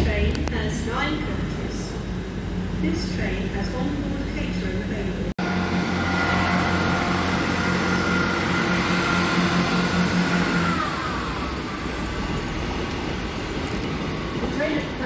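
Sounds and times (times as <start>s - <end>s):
train diesel engine hum: 5.1s - 15.0s
engine whine: 5.3s - 15.0s.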